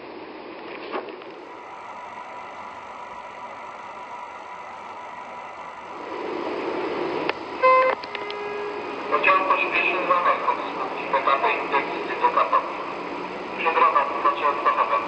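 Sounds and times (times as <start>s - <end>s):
model train humming: 1.3s - 15.0s
thin whine: 1.3s - 15.0s
station announcement chime: 1.4s - 15.0s
click: 7.2s - 8.4s.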